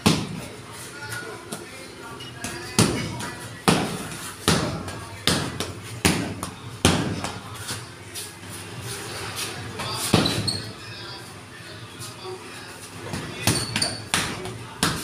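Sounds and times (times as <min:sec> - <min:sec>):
fists thudding on punching bag: 0:00.0 - 0:00.4, 0:02.7 - 0:07.4.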